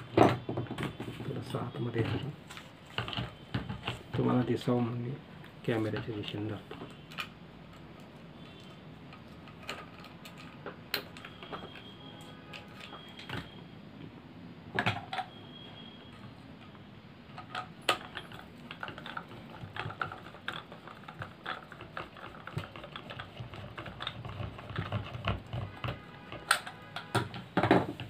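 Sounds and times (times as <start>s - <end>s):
screwdriver clicking in plastic: 17.4s - 27.3s.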